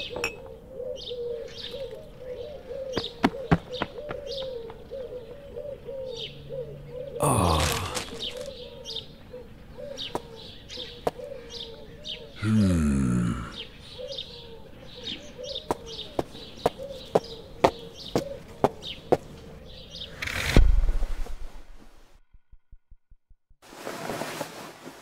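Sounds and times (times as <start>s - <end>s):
dove cooing: 0.0s - 12.4s, 13.6s - 19.6s
small birds chirping: 0.0s - 20.6s.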